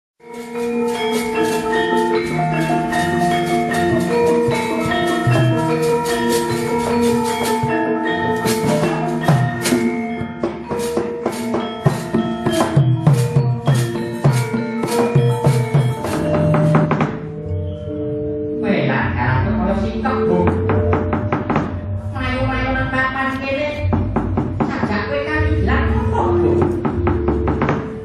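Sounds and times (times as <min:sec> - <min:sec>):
hand drum strokes: 0:00.2 - 0:17.3
metallophones ringing: 0:00.2 - 0:28.0.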